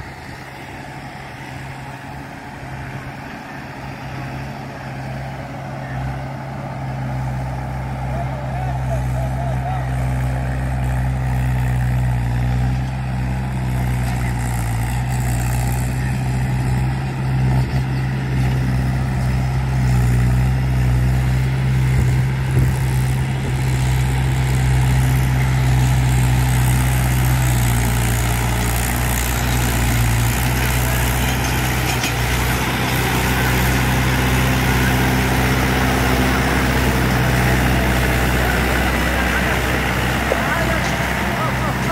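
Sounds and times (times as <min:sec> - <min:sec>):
tractor diesel engine drone: 0:00.0 - 0:41.9.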